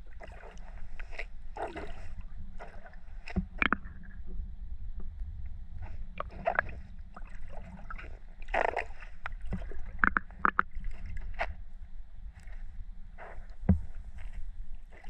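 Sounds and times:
seawater sloshing and splashing: 0.0 - 4.2, 5.8 - 11.7
steady low rumble: 0.0 - 15.0.

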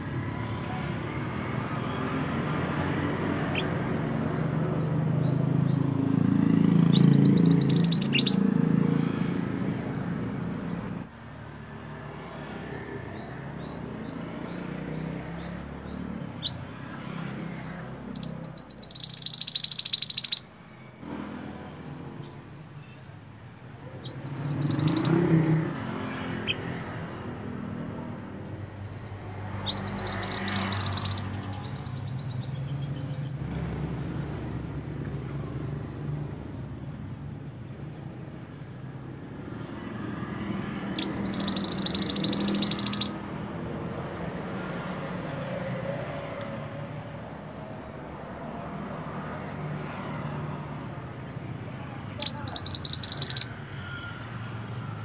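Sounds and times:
bird trilling song: 1.5 - 11.2, 12.4 - 21.0, 22.1 - 33.6, 39.5 - 44.2, 52.0 - 54.1
bird chirps: 1.7 - 9.2, 9.8 - 11.2, 12.4 - 21.2, 22.1 - 33.6, 39.6 - 43.4, 52.0 - 54.1.

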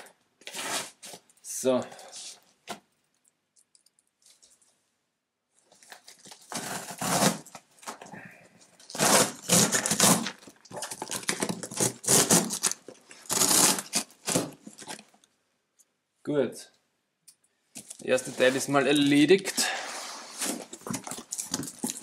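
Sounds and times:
packaging ripping and crinkling: 5.7 - 8.0, 8.8 - 15.1, 20.3 - 22.0.

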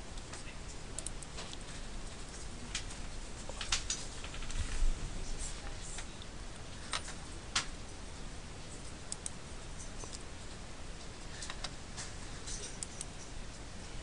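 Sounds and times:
steady background hiss: 0.0 - 14.0.

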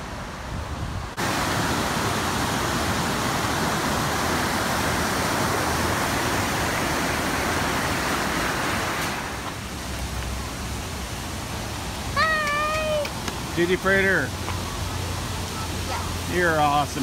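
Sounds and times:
river rushing over rocks: 0.0 - 17.0.

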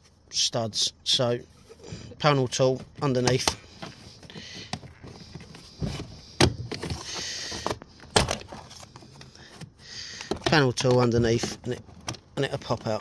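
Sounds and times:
plastic scraping and creaking: 1.7 - 13.0.

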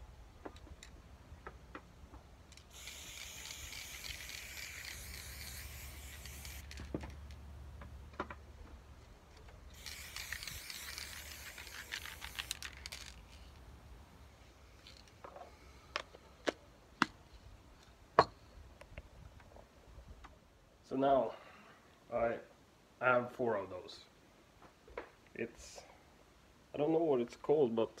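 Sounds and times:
spray can hissing: 2.6 - 6.9, 9.7 - 13.5.

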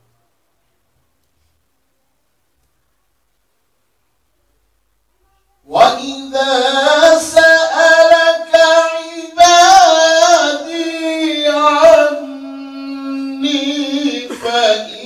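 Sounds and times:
man chanting into a microphone: 5.7 - 15.0.

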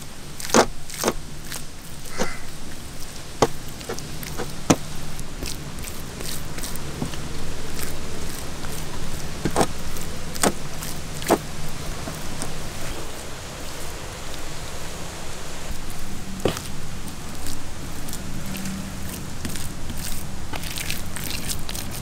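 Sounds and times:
hands rubbing wet paste on fish: 0.0 - 14.6, 15.7 - 22.0
steady hiss: 0.0 - 22.0
sharp wet slaps: 0.4 - 13.0, 16.4 - 22.0.

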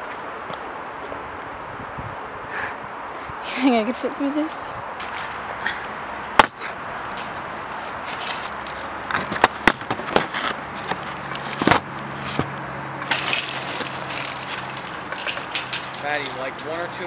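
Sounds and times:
crawling on gravel and leaves: 4.9 - 5.5, 6.8 - 17.0.

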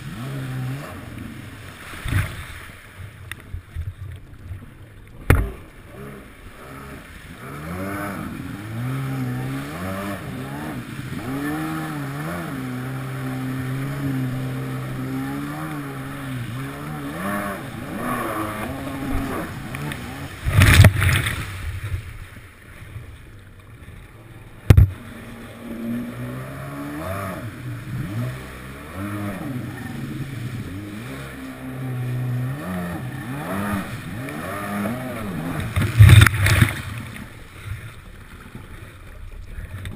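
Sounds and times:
jet ski engine revving: 0.0 - 3.3, 4.8 - 22.1, 23.4 - 39.9
water rushing against hull: 0.0 - 39.9.

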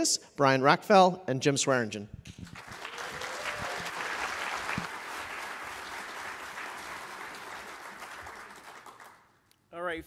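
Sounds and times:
audience applauding: 2.4 - 9.4.

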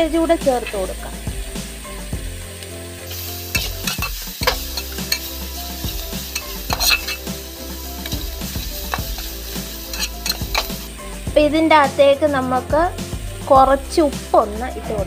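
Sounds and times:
steady sizzle: 0.0 - 15.0
metal spatula scraping a pan: 3.1 - 10.9.

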